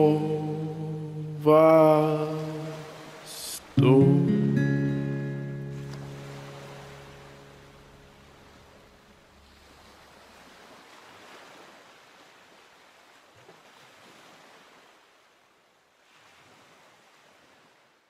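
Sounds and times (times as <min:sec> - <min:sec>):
acoustic guitar notes: 0:00.0 - 0:09.1
ocean surf washing in: 0:00.0 - 0:11.5.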